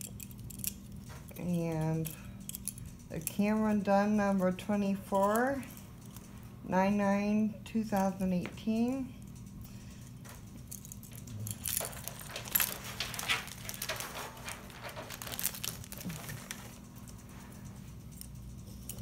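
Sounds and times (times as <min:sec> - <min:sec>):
metal locks and keys clinking: 0:00.0 - 0:03.8, 0:10.3 - 0:19.0
plastic bags crinkling: 0:10.7 - 0:17.0.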